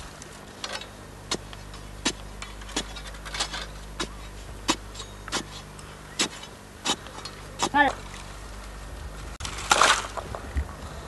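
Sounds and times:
digging stick striking stony earth: 0:01.2 - 0:08.0.

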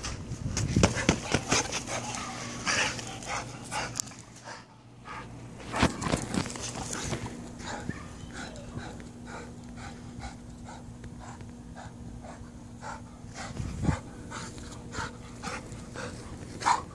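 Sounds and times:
dog panting hard: 0:00.8 - 0:05.4, 0:06.9 - 0:16.9.

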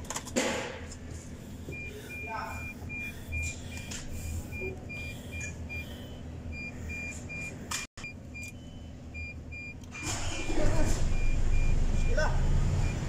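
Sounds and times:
warning buzzer short high beeps: 0:01.8 - 0:07.6.

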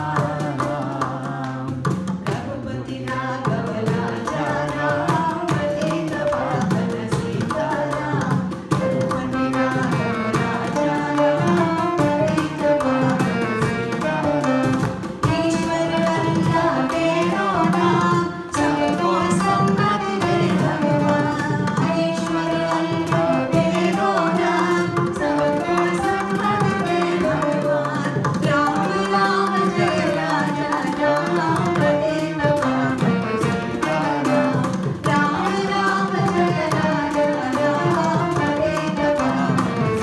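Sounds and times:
hand drum playing steadily: 0:00.0 - 0:40.0
woman singing into a microphone: 0:00.0 - 0:40.0.

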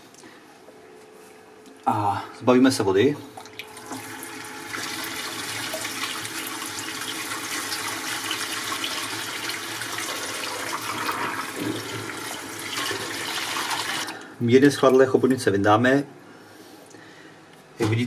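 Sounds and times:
water splashing into sink: 0:03.4 - 0:14.1.

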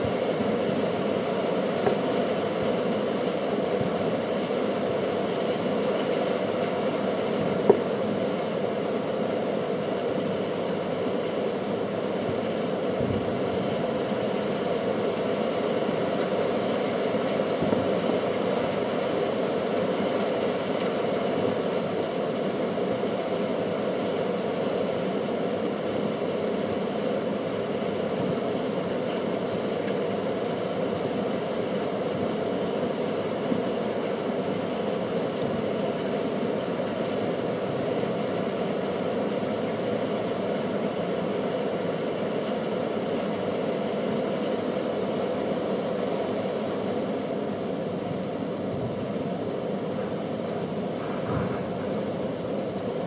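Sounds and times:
steady low hum: 0:00.0 - 0:53.0
firework bang: 0:51.0 - 0:51.9.

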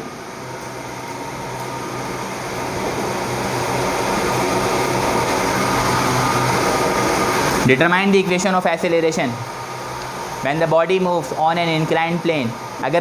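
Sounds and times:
high whine: 0:00.0 - 0:13.0
mechanical hum and hiss: 0:00.0 - 0:13.0.

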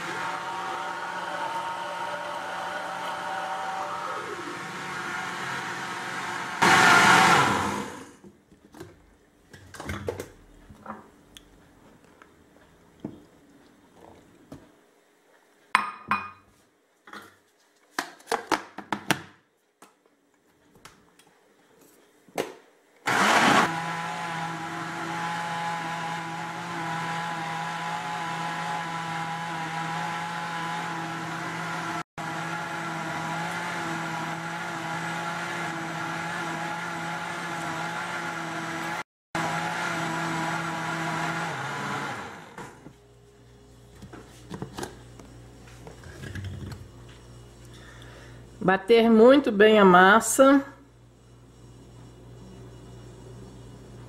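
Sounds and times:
blender running: 0:00.0 - 0:08.2, 0:23.0 - 0:42.9.

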